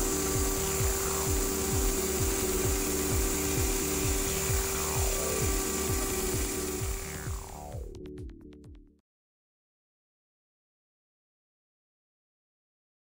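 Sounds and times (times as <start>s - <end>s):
machine hum: 0.0s - 8.7s
fast low pulsing: 0.0s - 8.8s.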